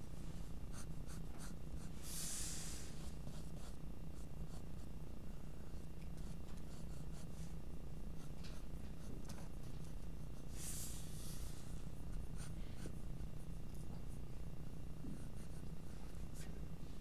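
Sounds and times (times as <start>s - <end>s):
steady low hum: 0.0s - 17.0s
pencil scratching on paper: 0.7s - 4.9s, 5.7s - 7.6s, 8.2s - 13.0s, 15.1s - 16.5s.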